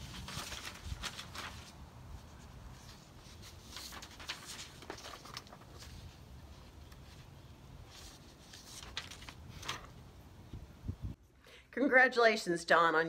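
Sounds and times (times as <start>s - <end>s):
paper rustling: 0.0s - 10.1s
low steady background noise: 0.0s - 13.0s.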